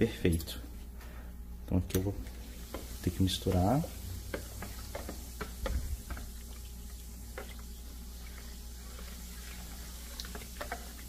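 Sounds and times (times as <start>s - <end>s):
steady low hum: 0.0s - 11.0s
liquid swishing: 4.3s - 11.0s.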